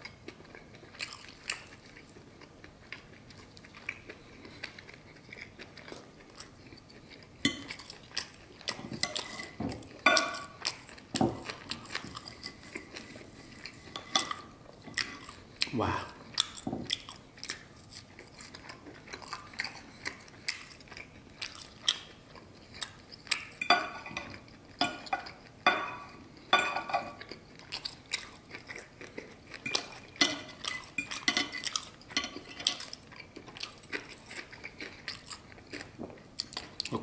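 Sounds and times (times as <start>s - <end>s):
close-up chewing: 0.0s - 25.6s, 26.2s - 37.0s
knife and fork scraping plate: 8.8s - 10.5s.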